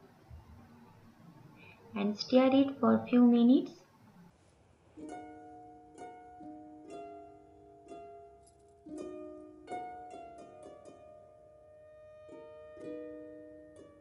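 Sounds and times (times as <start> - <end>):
plucked string music: 4.9 - 14.0.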